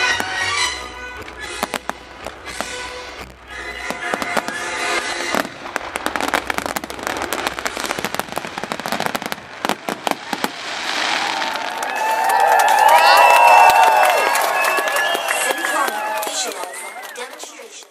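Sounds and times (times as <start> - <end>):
music: 0.0 - 5.4
fireworks bangs and crackling: 0.0 - 17.8
crowd cheering: 10.0 - 17.9.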